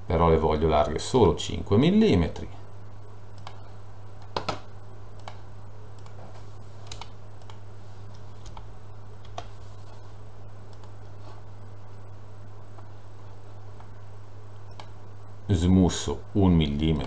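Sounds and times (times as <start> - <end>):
steady low hum: 0.0 - 17.0
keyboard keystrokes: 6.8 - 7.6.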